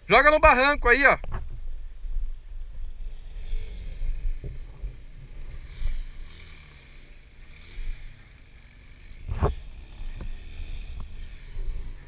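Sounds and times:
motorcycle engine wavering: 2.6 - 12.0.

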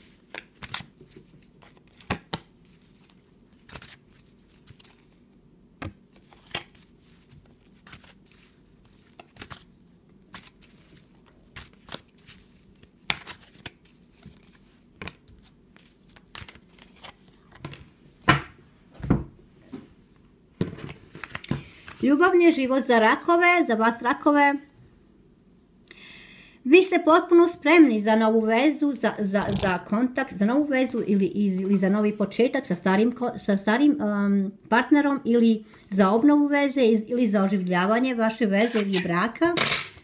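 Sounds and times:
cards shuffled by hand: 0.0 - 5.2, 10.3 - 17.9, 20.8 - 22.0, 29.4 - 29.8.

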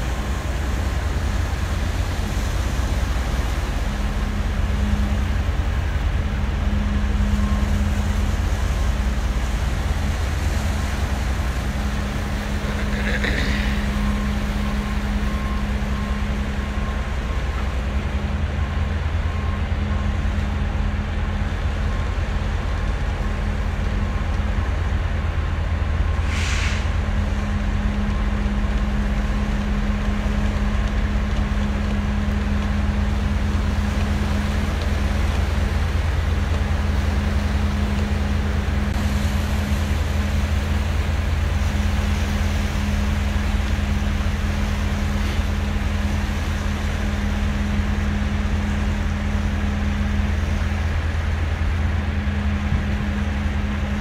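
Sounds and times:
low engine drone: 0.0 - 54.0
short hisses: 26.3 - 26.9.

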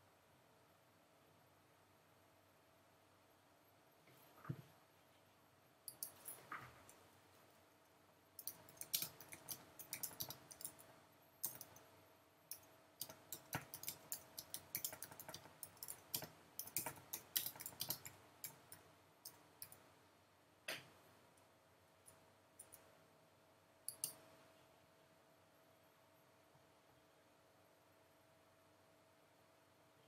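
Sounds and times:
keyboard typing: 5.9 - 7.0, 8.4 - 11.8, 12.5 - 19.8, 23.9 - 24.2.

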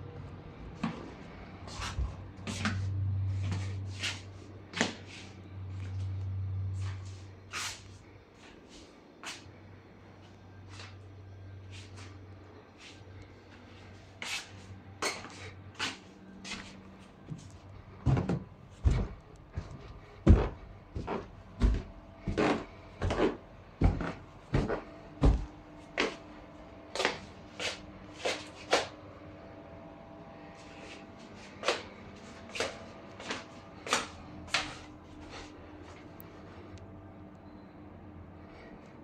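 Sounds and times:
footsteps in a house: 0.6 - 9.6, 10.2 - 29.1, 30.4 - 36.8
footsteps thudding on stairs: 18.0 - 25.6.

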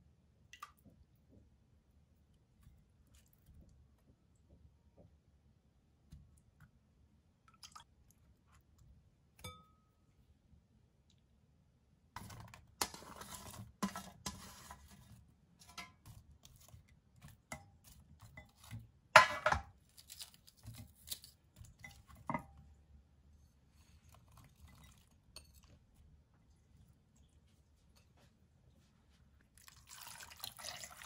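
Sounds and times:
knocks and clinks against pot: 18.4 - 19.7
onion chunks dropping into pot: 18.6 - 21.4.

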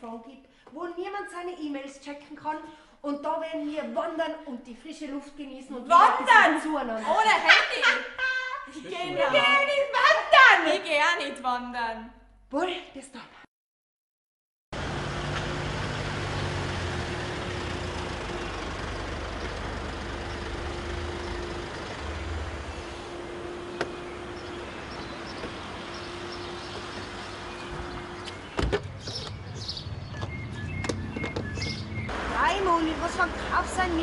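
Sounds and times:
car engine rumble: 14.8 - 34.0.

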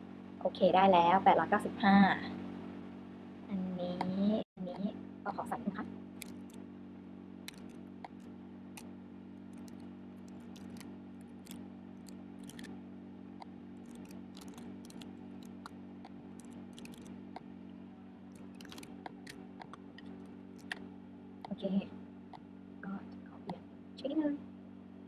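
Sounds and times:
steady low hum: 0.0 - 25.0
typing on computer keyboard: 6.2 - 6.6, 7.5 - 8.2, 9.6 - 10.8, 11.4 - 12.7, 13.9 - 15.7, 16.4 - 17.1, 18.4 - 20.8.

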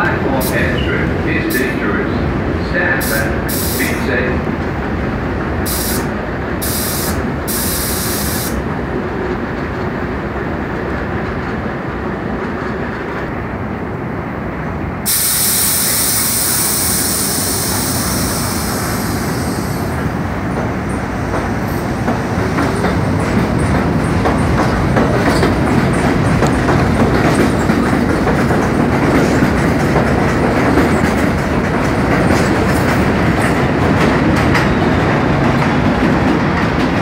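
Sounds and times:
train motors and compressors running: 0.0 - 37.0
compressed air hissing: 3.0 - 4.0, 5.6 - 8.6, 15.1 - 20.0
train wheels clacking over rail joints: 17.0 - 37.0.

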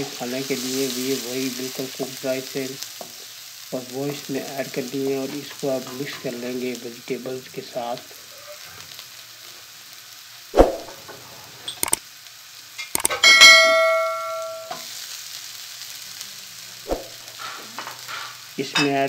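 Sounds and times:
vegetables sizzling in frying pan: 0.0 - 19.0
loud metallic clang: 13.0 - 14.8.

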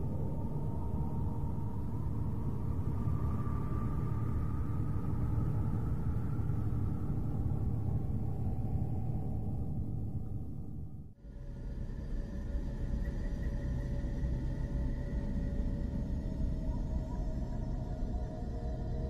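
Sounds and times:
deep rumbling drone: 0.0 - 11.2.

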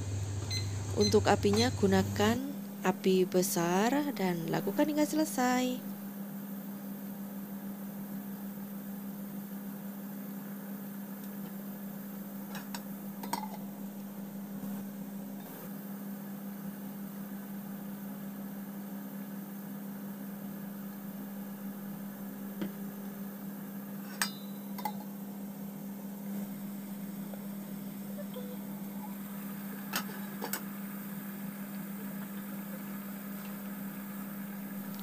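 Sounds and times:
steady low hum: 0.0 - 6.1.

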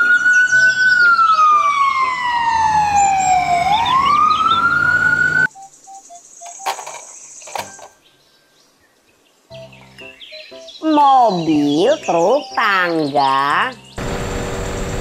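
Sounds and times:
ambulance siren wailing: 0.0 - 5.5
plastic toys clattering: 6.4 - 8.0.

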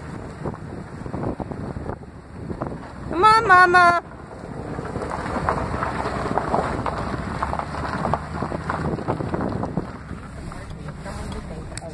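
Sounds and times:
wind buffeting microphone: 0.0 - 11.9.

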